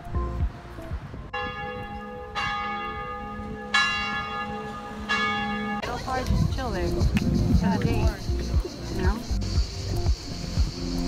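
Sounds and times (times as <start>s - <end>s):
church bell tolling: 1.3s - 6.2s.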